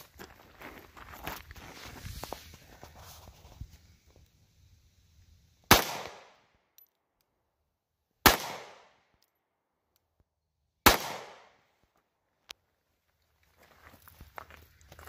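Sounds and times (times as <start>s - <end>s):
pistol shots: 5.7s - 6.4s, 8.2s - 9.1s, 10.8s - 11.6s.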